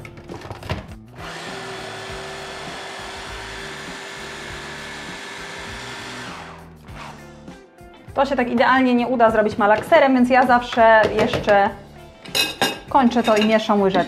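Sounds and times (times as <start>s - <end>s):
electric food chopper running: 1.1s - 7.2s.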